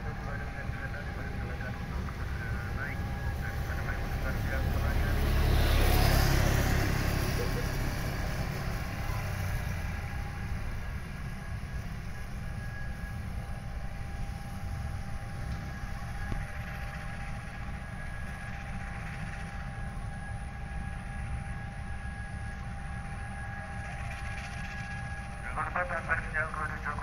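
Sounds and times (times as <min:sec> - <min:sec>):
locomotive idling rumble and whine: 0:00.0 - 0:27.0
motorcycle passing: 0:02.9 - 0:11.3.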